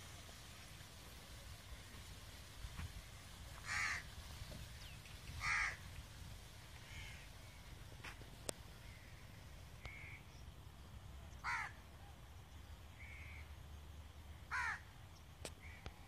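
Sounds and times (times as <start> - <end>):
bird calling: 6.8 - 7.8, 8.8 - 10.4, 13.0 - 13.5.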